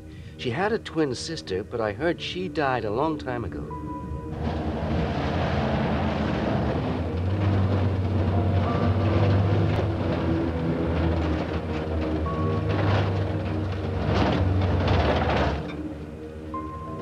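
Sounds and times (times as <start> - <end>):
road noise: 0.0 - 17.0
car engine running: 0.6 - 17.0.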